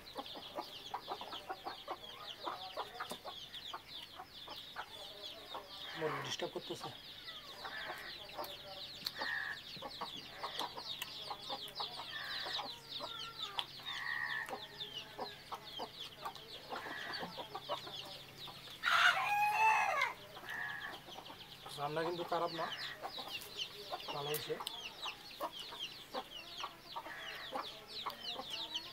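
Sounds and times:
chickens clucking: 0.0s - 28.9s
rooster crowing: 12.1s - 14.5s, 18.8s - 21.0s.

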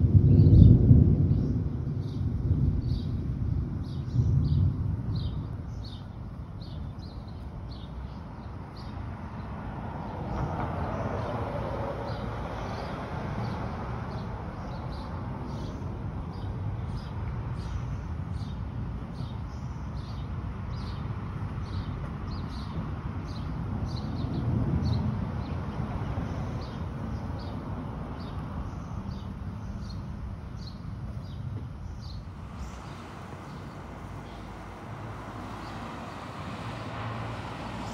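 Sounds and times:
distant thunder rumble: 0.0s - 7.7s
low rumble of thunder: 0.0s - 19.3s, 20.4s - 35.9s
car driving past: 32.0s - 37.9s.

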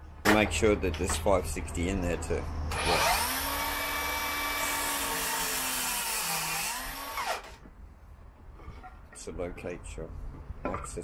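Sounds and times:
mitre saw cutting timber: 2.7s - 7.6s
saw motor winding down: 2.7s - 7.6s.

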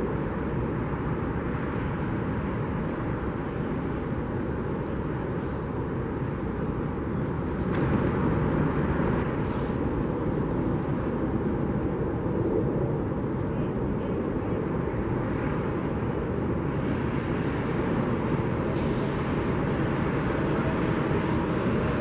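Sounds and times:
airport noise: 0.0s - 22.0s
jet engines rumbling: 0.0s - 22.0s.

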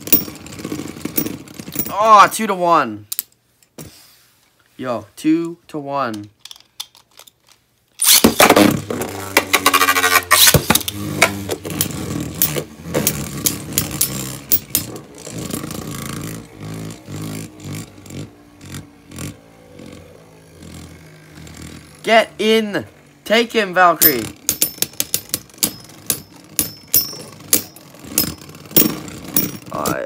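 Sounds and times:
spinning top launcher rip: 8.0s - 11.5s.

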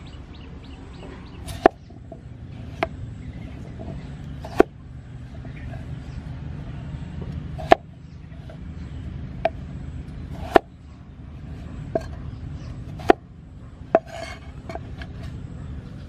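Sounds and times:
low background rumble: 0.0s - 16.0s
knife chopping on cutting board: 13.0s - 13.2s.

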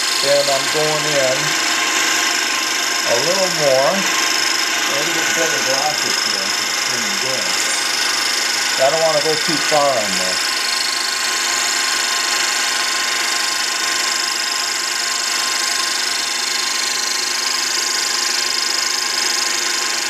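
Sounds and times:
high hiss of grinding: 0.0s - 14.4s
lathe machine hum: 0.0s - 20.0s.

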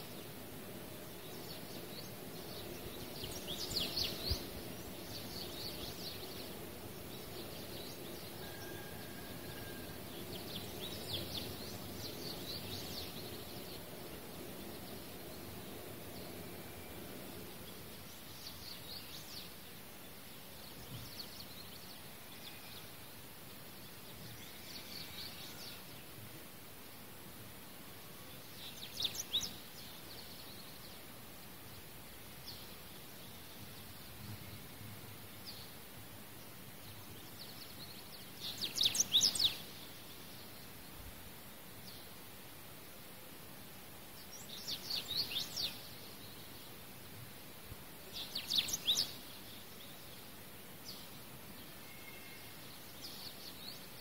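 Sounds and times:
small birds chirping: 0.0s - 26.4s, 27.4s - 42.3s, 43.6s - 54.0s
low background noise: 0.0s - 54.0s.

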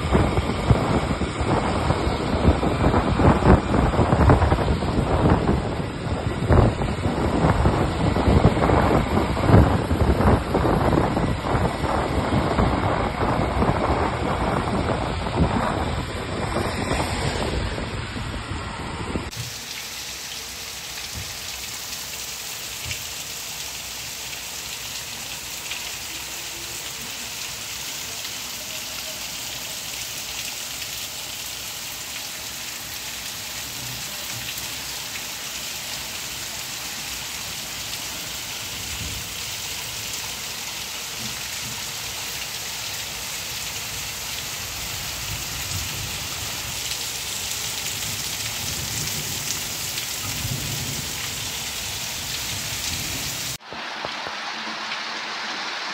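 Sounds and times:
wind buffeting microphone: 0.0s - 19.5s, 38.6s - 39.5s, 44.6s - 53.6s
rain on street and roofs: 0.0s - 55.9s.

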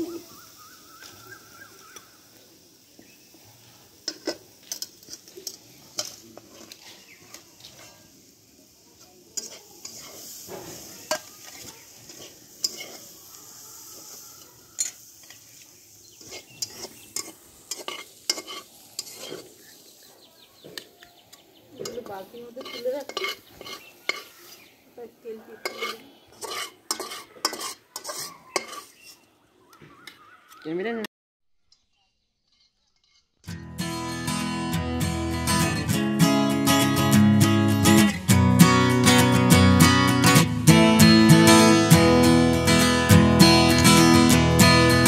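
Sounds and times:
faint sizzle: 0.0s - 30.2s
metal spatula scraping a pan: 4.0s - 8.3s, 9.0s - 19.8s, 21.8s - 24.7s, 25.5s - 29.3s, 32.4s - 33.4s.

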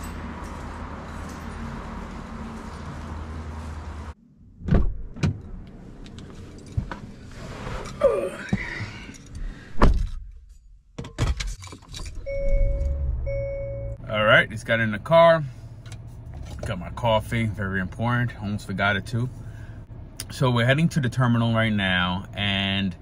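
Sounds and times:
knocks and rattles in a car: 11.0s - 12.2s.

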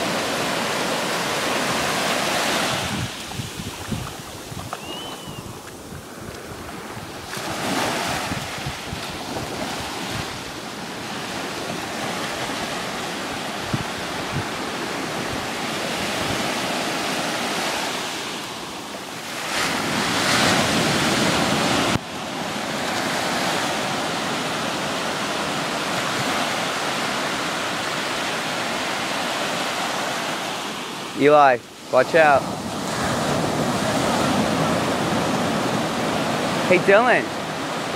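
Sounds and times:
wind buffeting microphone: 0.0s - 17.6s
waves washing on sand: 0.0s - 37.9s.

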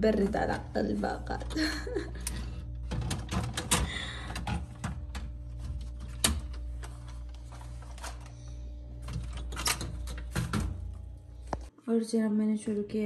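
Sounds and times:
fridge humming: 0.0s - 11.7s.

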